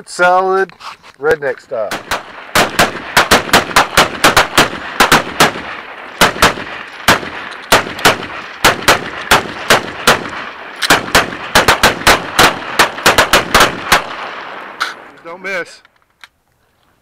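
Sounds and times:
rapid gunfire: 1.9 - 14.6.

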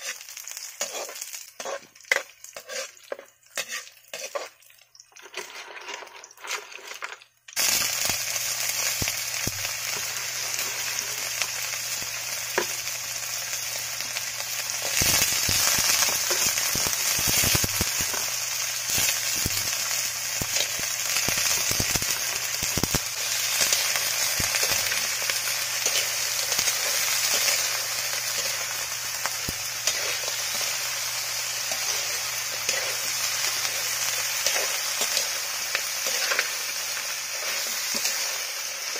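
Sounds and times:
crabs sizzling in hot oil: 0.0 - 38.9
metal ladle scraping: 0.8 - 4.5, 5.2 - 7.1.

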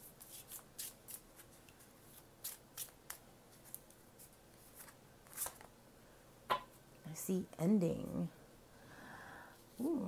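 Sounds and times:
cards being shuffled by hand: 0.0 - 5.7.

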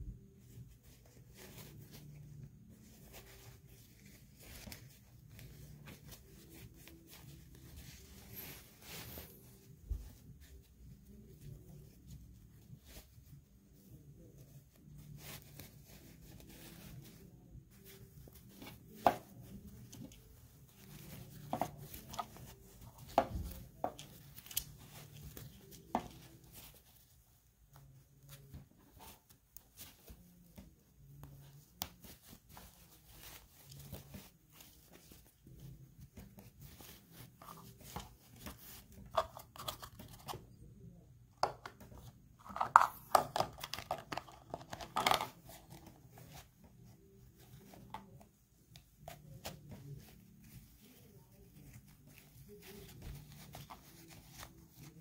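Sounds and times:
cloth rustling: 0.0 - 40.5, 41.7 - 55.0.

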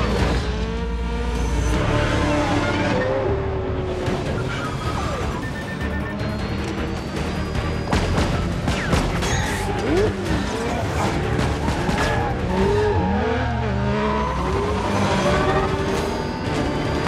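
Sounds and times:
car engine revving: 0.0 - 17.0
film music score: 0.0 - 17.0.

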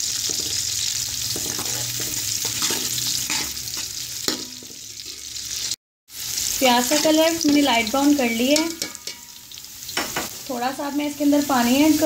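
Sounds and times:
onions sizzling in oil: 0.0 - 12.0
metal spoon scraping pot: 1.3 - 4.4.

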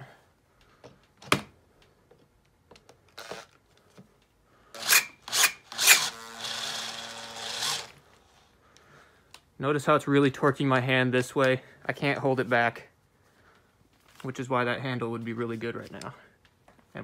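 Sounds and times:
cordless drill whining under load: 3.2 - 3.6, 4.7 - 8.1
screw rasping into cinder block: 4.7 - 8.0.

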